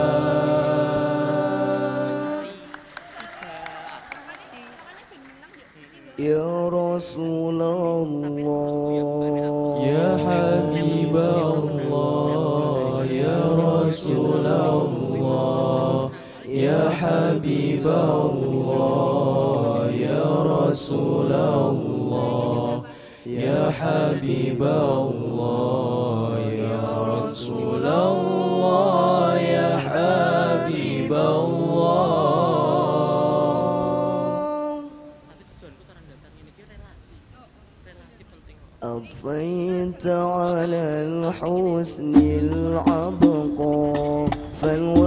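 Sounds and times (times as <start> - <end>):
men singing together: 0.0 - 2.7, 6.2 - 35.0, 41.0 - 45.0.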